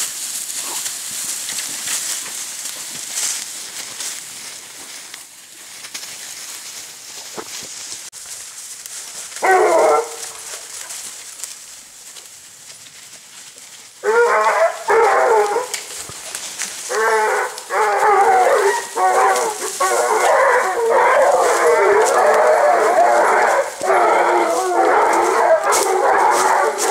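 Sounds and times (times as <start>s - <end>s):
hounds baying: 9.3s - 11.0s, 13.9s - 26.9s.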